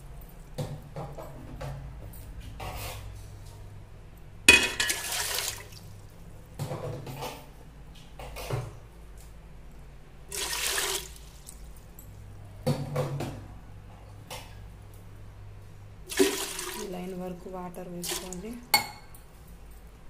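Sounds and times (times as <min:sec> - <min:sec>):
water pouring into metal pot: 0:04.7 - 0:05.8, 0:10.3 - 0:11.6, 0:16.1 - 0:16.9.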